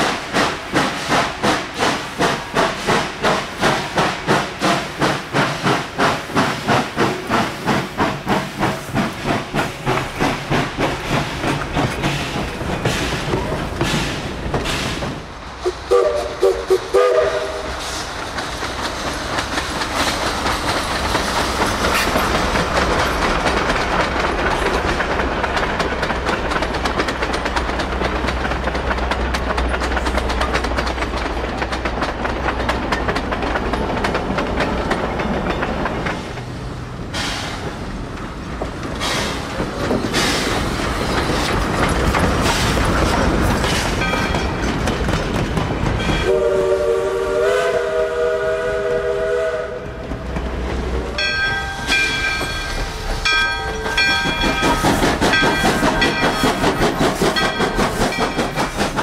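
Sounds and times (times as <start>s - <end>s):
train wheels clicking over rail joints: 0.0s - 59.0s
locomotive chime whistle: 46.1s - 49.8s.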